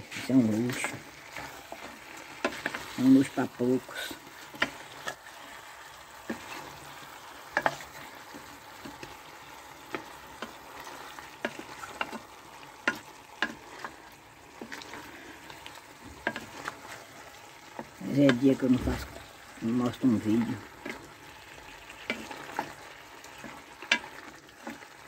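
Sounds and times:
chicken sizzling in a pan: 0.0 - 25.0
spatula scraping a pan: 0.0 - 25.0.

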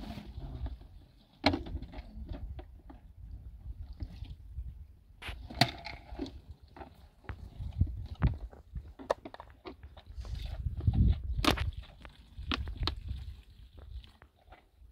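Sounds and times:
water poured into bottles: 9.8 - 14.9.

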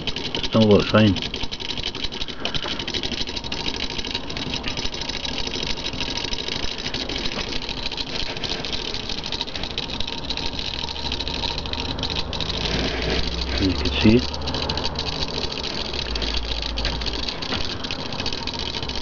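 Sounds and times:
small motor mechanical clatter: 0.0 - 19.0.

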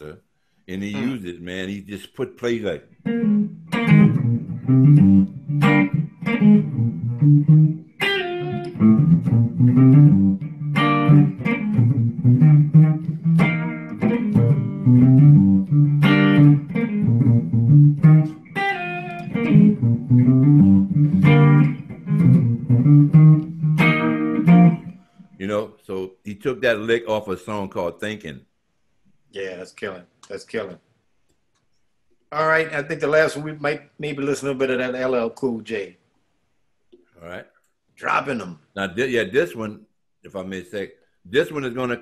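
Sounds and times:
electric guitar funk lick: 3.0 - 25.0
electric bass line: 3.2 - 24.9.

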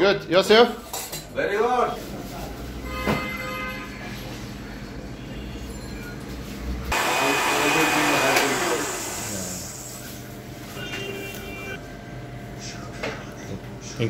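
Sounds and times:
electric blender whirring: 6.9 - 10.2.

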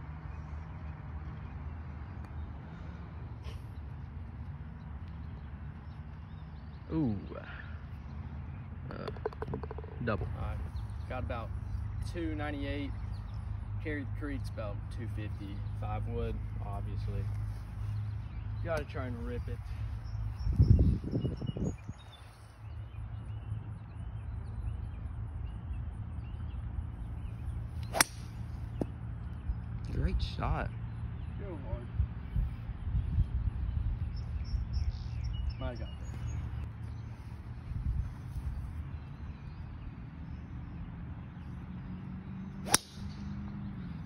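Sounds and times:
bird chirping: 4.7 - 44.0
golf club striking ball: 9.1 - 10.5, 27.8 - 28.9, 42.6 - 43.3
wind rumbling on microphone: 15.5 - 27.6, 28.6 - 40.0.

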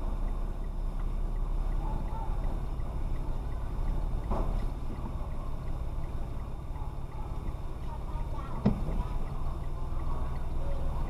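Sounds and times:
car road and engine rumble: 0.0 - 11.0
faint even ticking: 0.0 - 11.0.

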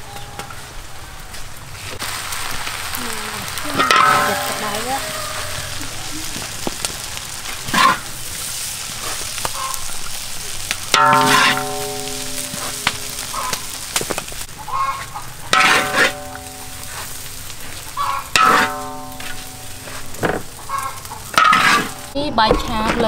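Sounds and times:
rice sizzling in a wok: 0.4 - 22.2
metal spatula scraping wok: 3.6 - 5.8, 7.2 - 9.8, 10.9 - 23.0.

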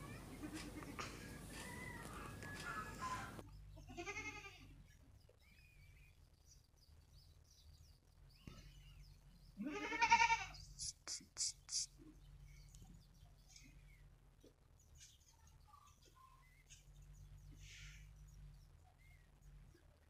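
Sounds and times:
goat bleating: 3.8 - 4.8, 9.6 - 10.6.

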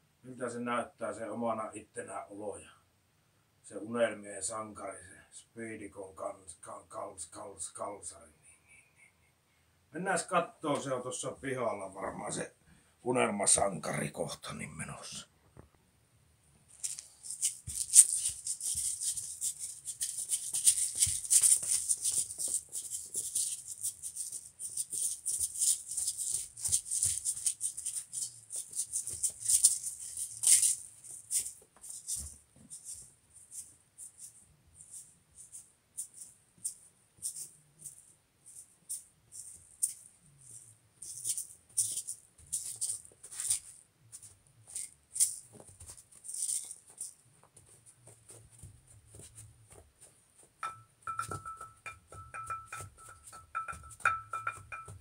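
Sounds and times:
shaker rattling in rhythm: 16.7 - 55.0.

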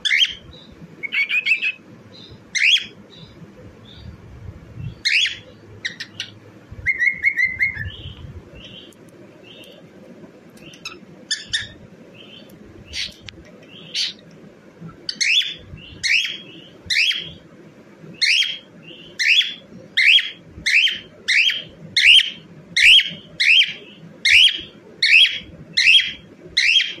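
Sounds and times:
cockatiel chirping: 0.0 - 0.4, 1.0 - 1.8, 2.5 - 3.0, 5.0 - 8.9, 10.6 - 13.2, 13.8 - 14.2, 15.1 - 17.4, 18.2 - 27.0.

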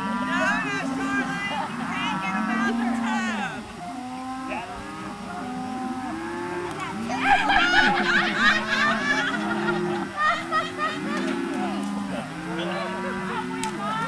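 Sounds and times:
people talking and calling out: 0.0 - 14.0
children shouting: 6.8 - 14.0.

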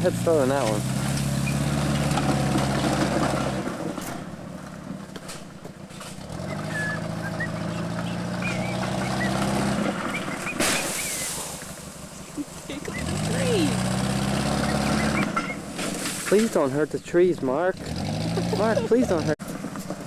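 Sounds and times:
bumper hitting trees: 0.0 - 12.1, 13.0 - 16.8
car engine running hard: 0.0 - 16.7, 17.5 - 20.0.

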